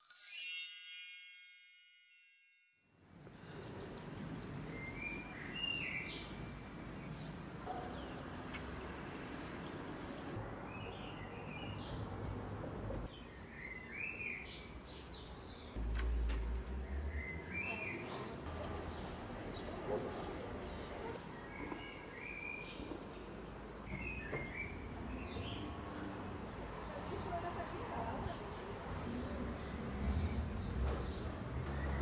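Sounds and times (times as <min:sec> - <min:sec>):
bright chime ringing: 0:00.0 - 0:02.8
outdoor background noise: 0:03.0 - 0:32.0.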